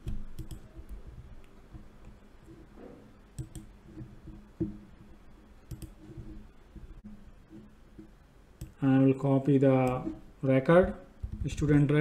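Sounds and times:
sharp computer mouse clicks: 3.4s - 3.7s, 5.7s - 6.0s.

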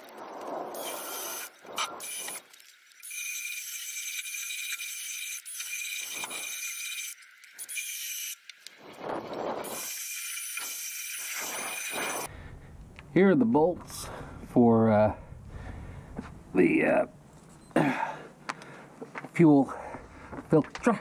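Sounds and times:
wire brush scraping rust: 0.0s - 12.3s
drill motor whining: 3.0s - 8.5s.

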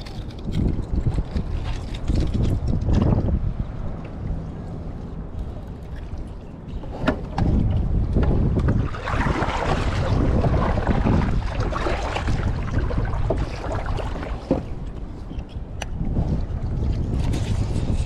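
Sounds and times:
wind buffeting microphone: 0.0s - 18.0s
paddle splashing in water: 8.2s - 14.9s.

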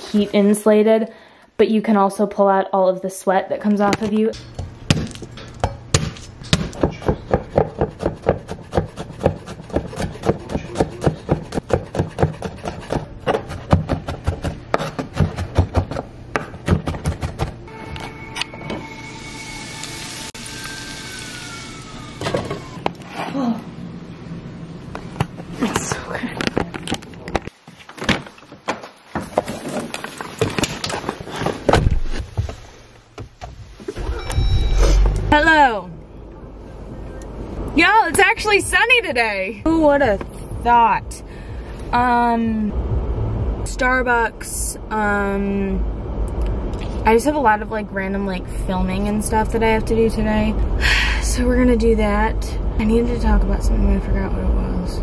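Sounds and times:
knife chopping on wooden board: 4.9s - 17.6s.

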